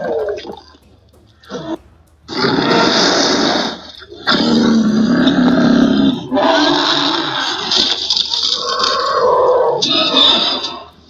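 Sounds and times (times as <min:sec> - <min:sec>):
creature growling roar: 0:04.3 - 0:10.8.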